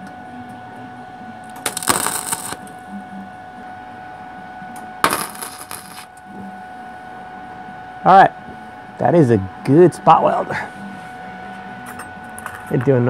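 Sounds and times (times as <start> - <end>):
welding arc crackling: 1.6 - 2.7, 5.1 - 6.1.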